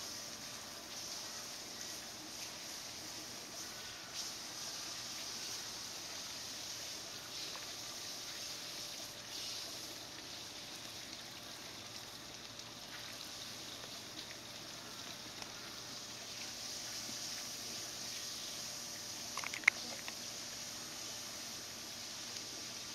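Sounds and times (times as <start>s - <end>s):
water spraying from hose: 0.0s - 22.9s
faint ticks: 15.3s - 15.6s.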